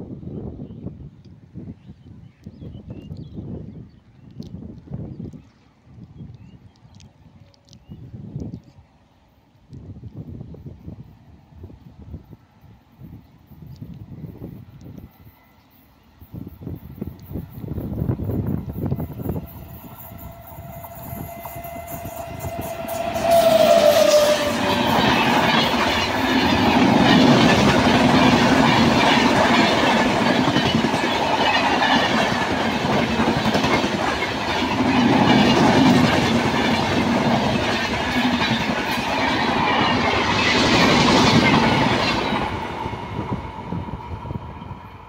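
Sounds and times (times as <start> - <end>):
train wheels clattering on rails: 17.0 - 43.7.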